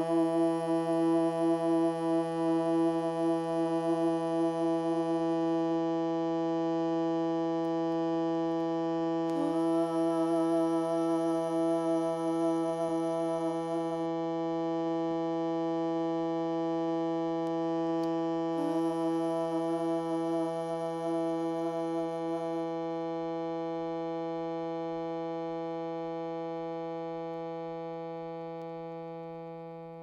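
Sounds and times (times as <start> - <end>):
harmonium drone chord: 9.2 - 14.8, 17.8 - 25.6.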